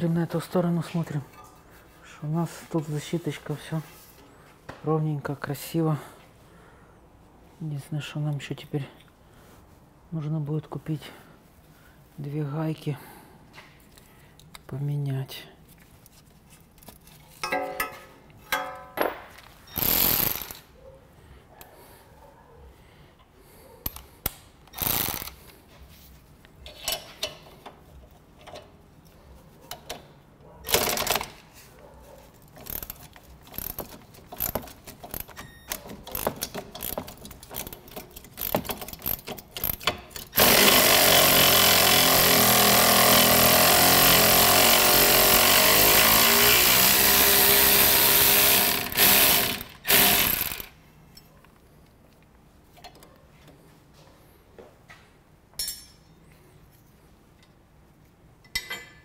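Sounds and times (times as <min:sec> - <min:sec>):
tools and parts clanking: 0:01.0 - 0:01.7, 0:16.6 - 0:20.7, 0:26.6 - 0:28.9, 0:32.3 - 0:40.5, 0:52.7 - 0:53.6, 0:55.5 - 0:57.6, 0:58.4 - 0:59.0
handheld power tool running: 0:19.8 - 0:20.6, 0:24.8 - 0:25.3, 0:38.4 - 0:50.7.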